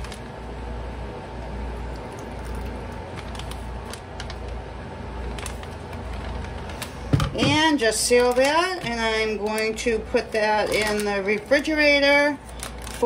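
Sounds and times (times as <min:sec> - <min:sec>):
plastic bag crinkles: 0:00.0 - 0:00.4, 0:01.8 - 0:04.6, 0:05.2 - 0:07.0, 0:07.8 - 0:13.0
steady low hum: 0:00.0 - 0:13.0.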